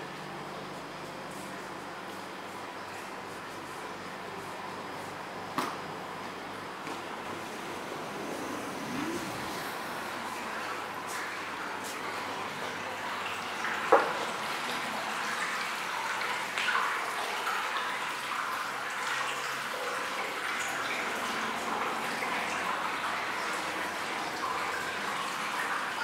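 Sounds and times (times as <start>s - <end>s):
water pouring into a bath: 7.4s - 26.0s.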